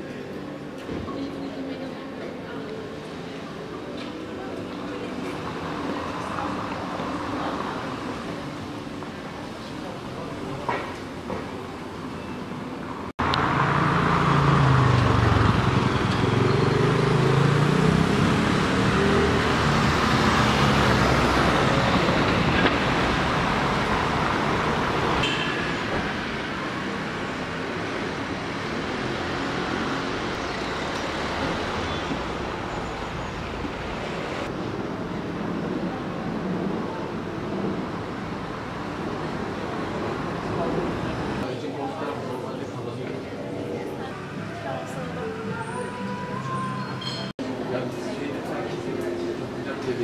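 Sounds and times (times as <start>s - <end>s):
traffic hum: 0.0s - 50.0s
vehicle engine running close by: 13.2s - 23.5s.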